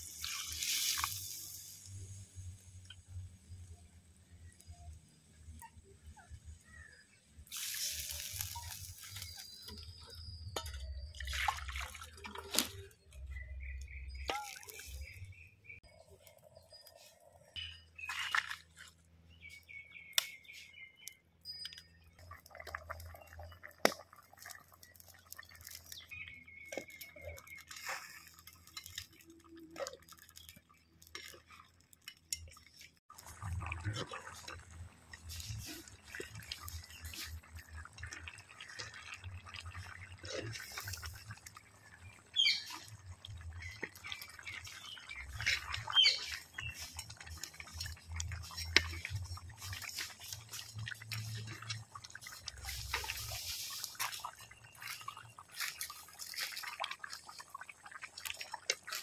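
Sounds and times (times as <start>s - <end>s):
gravy bubbling and popping: 0.0s - 59.0s
wood fire crackling: 7.4s - 10.1s, 22.2s - 59.0s.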